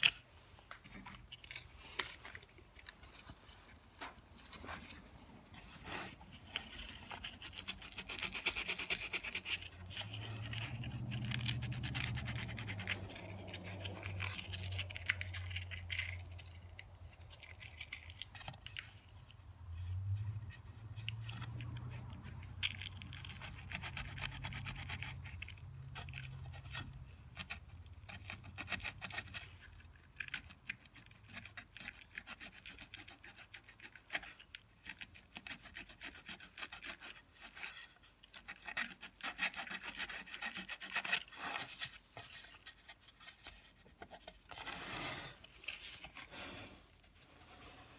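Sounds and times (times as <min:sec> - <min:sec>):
hand scraping wood carving: 0:00.0 - 0:47.9.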